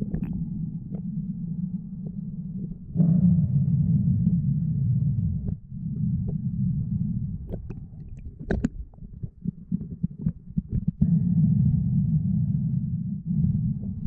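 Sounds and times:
muffled underwater rumble: 0.0 - 14.0
sharp clicks and crackles: 7.1 - 11.0.

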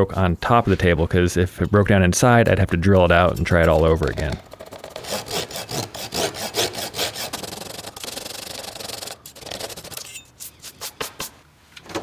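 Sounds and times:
rubbing on wood: 4.4 - 11.4
rasping strokes on wood: 4.6 - 11.2.

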